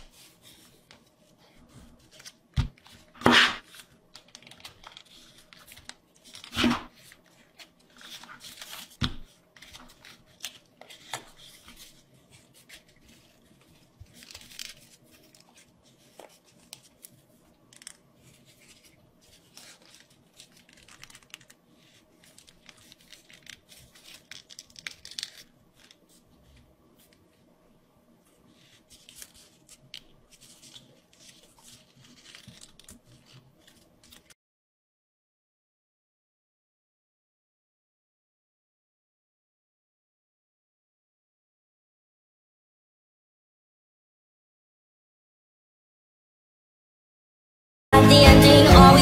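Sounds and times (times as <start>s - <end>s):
paper crinkling and rustling: 0.0s - 27.5s, 28.2s - 34.4s.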